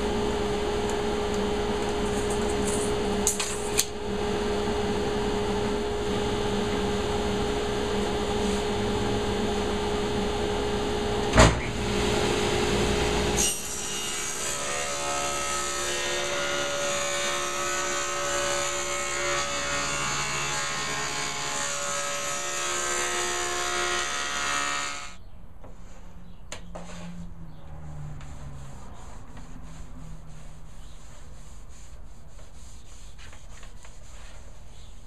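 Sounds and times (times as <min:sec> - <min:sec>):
electric sander on plywood: 0:16.6 - 0:25.2.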